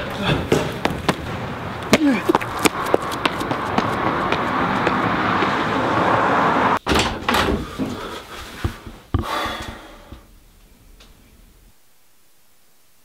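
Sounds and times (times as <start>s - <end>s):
outdoor rush of noise: 0.0s - 11.8s
door being pushed open: 6.8s - 8.0s.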